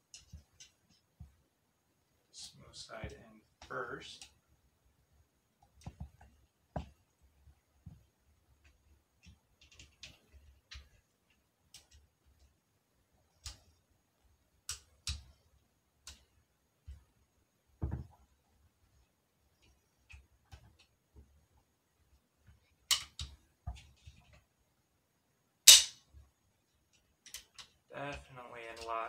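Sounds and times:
sharp metallic snap: 25.7s - 26.1s.

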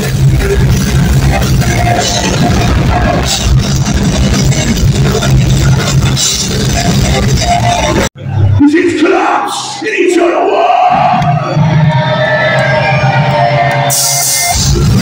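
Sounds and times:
bass guitar: 0.0s - 8.6s, 10.9s - 15.0s
distorted guitars: 0.0s - 15.0s
drums: 0.0s - 15.0s.

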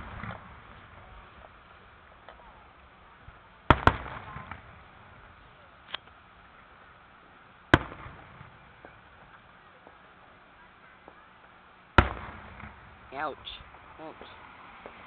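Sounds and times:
firework shells bursting: 3.7s - 6.2s, 12.0s - 15.0s.

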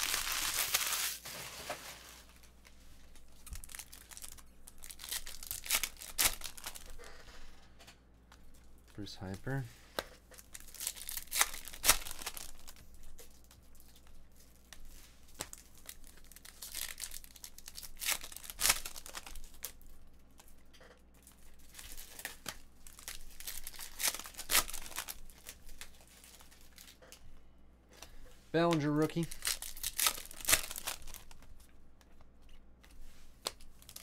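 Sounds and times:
card wrappers crinkling: 0.0s - 7.0s, 10.4s - 20.6s, 21.2s - 27.0s, 28.6s - 31.7s, 32.8s - 34.0s
sharp paper rips: 28.6s - 31.2s.

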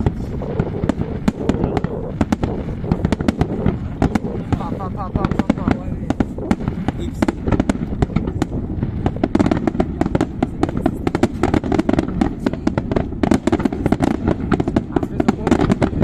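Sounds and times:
firework shell bursts and crackle: 0.0s - 16.0s
low rumble: 0.0s - 16.0s.

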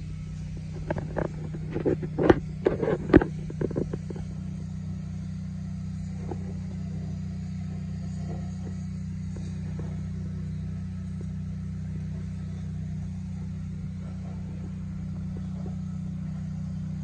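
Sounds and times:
tractor diesel engine idling: 0.0s - 17.0s
sharp knocks and clatter: 0.5s - 4.5s.

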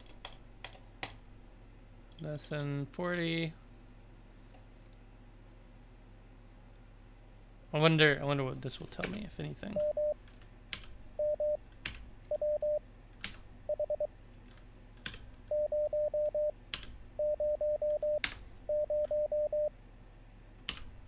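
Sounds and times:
morse code beeps: 9.8s - 10.2s, 11.2s - 11.6s, 12.3s - 12.8s, 13.7s - 14.1s, 15.5s - 16.5s, 17.2s - 19.7s.

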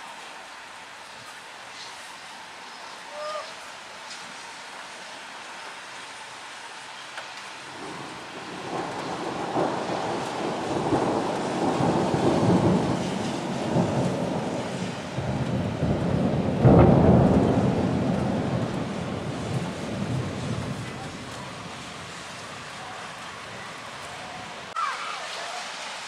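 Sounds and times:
thunder rumbling: 7.7s - 24.8s.

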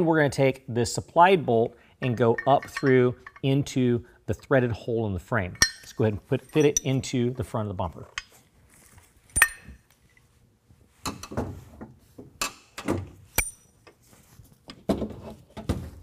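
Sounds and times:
sharp metallic clinks: 2.2s - 3.6s, 5.6s - 7.1s, 9.4s - 9.8s, 13.4s - 13.7s.

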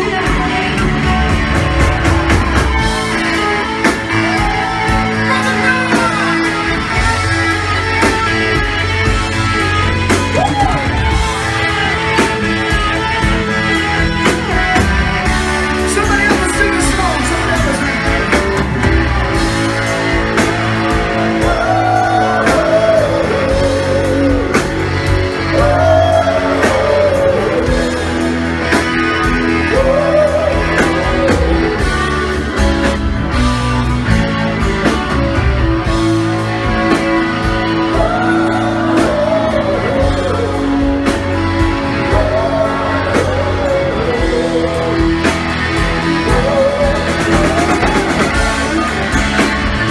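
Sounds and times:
bass guitar: 0.0s - 49.9s
drums: 0.0s - 49.9s
electric guitars: 0.0s - 49.9s
person singing: 20.8s - 32.6s, 36.9s - 49.9s.

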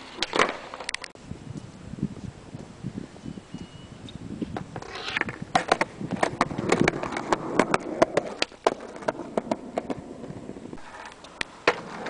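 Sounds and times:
skateboard rolling on concrete: 0.0s - 3.2s, 4.0s - 12.0s
skateboard clicks and clacks: 4.8s - 12.0s.

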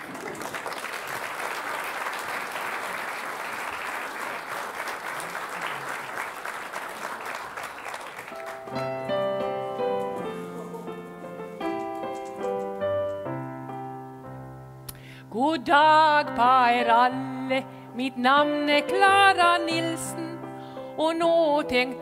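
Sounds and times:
audience applauding: 0.0s - 12.3s
piano playing chords: 8.3s - 22.0s.

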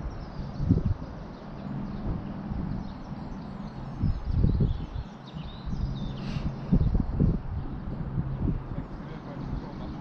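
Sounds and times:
wind buffeting microphone: 0.0s - 10.0s
faint bird chirps: 2.7s - 7.4s.

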